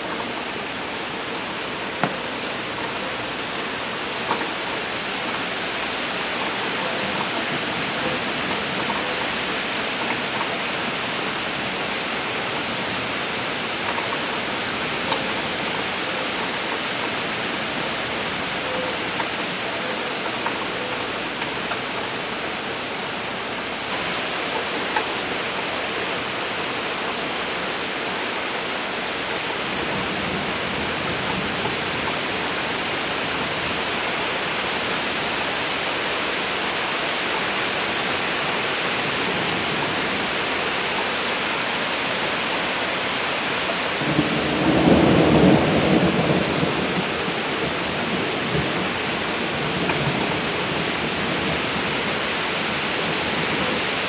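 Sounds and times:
rain hissing: 0:00.0 - 0:54.0.

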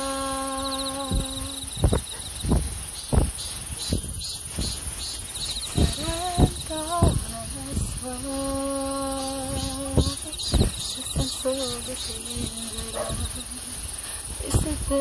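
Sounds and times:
crickets chirping: 0:00.0 - 0:15.0
short low thumps: 0:01.0 - 0:04.8, 0:05.7 - 0:08.0, 0:09.6 - 0:11.4.

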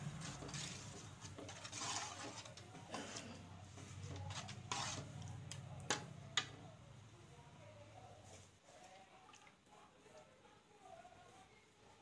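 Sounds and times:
spoon scraping curry in pot: 0:00.0 - 0:06.7.

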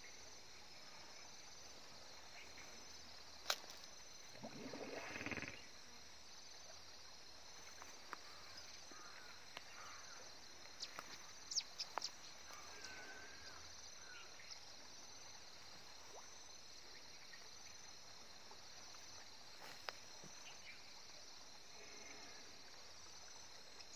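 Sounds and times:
insect chorus chirring: 0:00.0 - 0:23.9.

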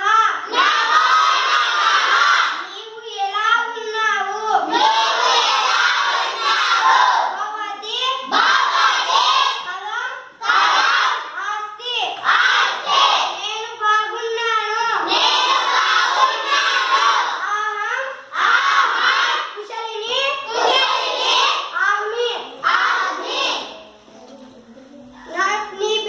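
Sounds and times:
children reading aloud in chorus: 0:00.0 - 0:26.0.

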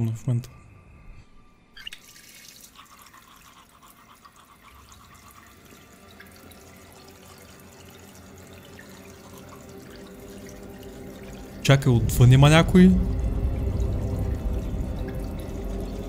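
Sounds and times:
low hum: 0:00.0 - 0:01.9, 0:04.8 - 0:16.0.

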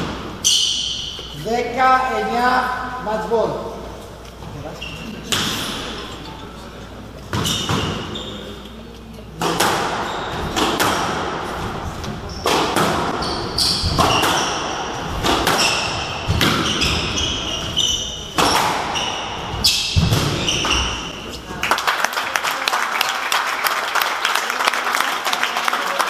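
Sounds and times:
shoes squeaking on wooden floor: 0:07.2 - 0:09.1, 0:09.8 - 0:21.5
squash ball hits: 0:09.4 - 0:21.2.

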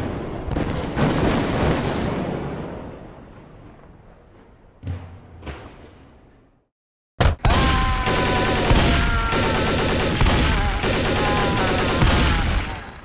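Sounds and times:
rapid automatic gunfire: 0:07.6 - 0:13.0.

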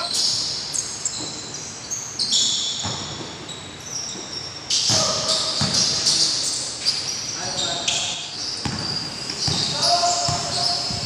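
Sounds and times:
sneakers squeaking on court floor: 0:00.0 - 0:11.0
basketball bouncing: 0:04.9 - 0:06.0, 0:08.6 - 0:11.0.

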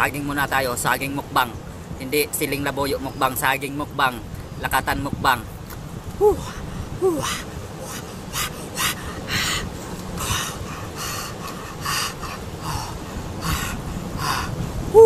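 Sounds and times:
man breathing hard through mouth: 0:06.4 - 0:15.0.

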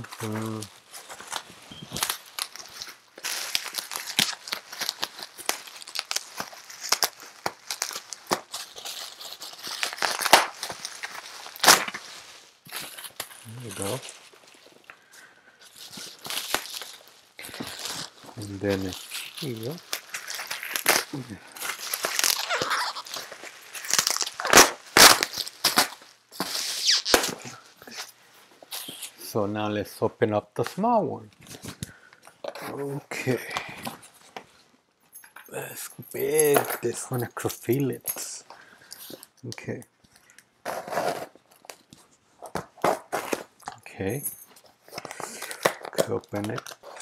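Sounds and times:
packaging ripping: 0:00.0 - 0:14.9, 0:15.6 - 0:29.2, 0:40.2 - 0:43.8, 0:44.7 - 0:47.0
bubble wrap crinkling and popping: 0:00.0 - 0:29.4, 0:30.6 - 0:34.8, 0:35.6 - 0:47.0.

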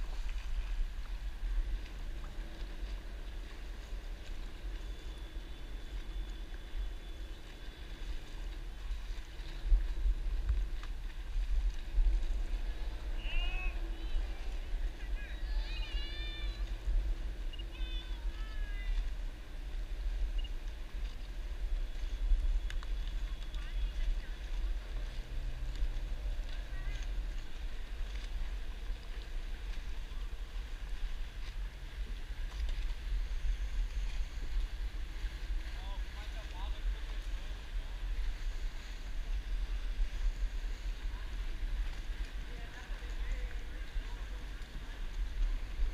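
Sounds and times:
paddle splashes: 0:00.0 - 0:45.9
wind and water rumble: 0:00.0 - 0:45.9.

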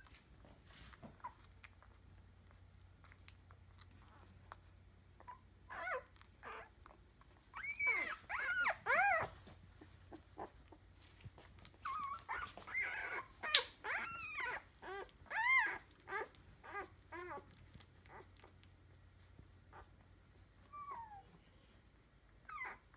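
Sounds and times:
puppies whimpering and squealing: 0:05.2 - 0:10.8, 0:11.5 - 0:18.6, 0:20.6 - 0:21.3, 0:22.4 - 0:22.9.

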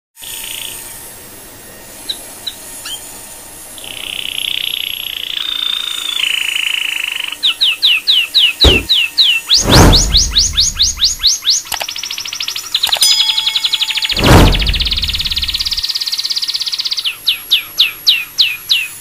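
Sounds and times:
high-pitched trilling: 0:13.0 - 0:14.2.

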